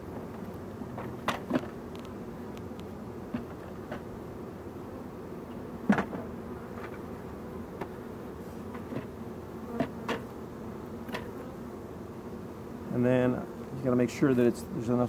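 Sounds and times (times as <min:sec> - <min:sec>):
hive frames knocking: 0:00.0 - 0:04.2, 0:05.8 - 0:07.1, 0:07.7 - 0:08.0, 0:08.6 - 0:10.4, 0:11.0 - 0:11.4
bees buzzing: 0:00.0 - 0:15.0.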